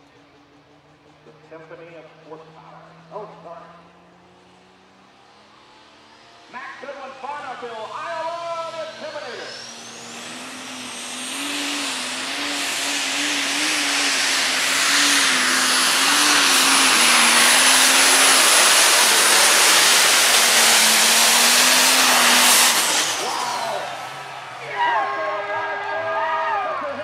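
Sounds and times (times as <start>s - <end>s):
diesel tractor engine at full throttle: 0.0s - 27.0s
high turbo whistle: 8.6s - 25.3s.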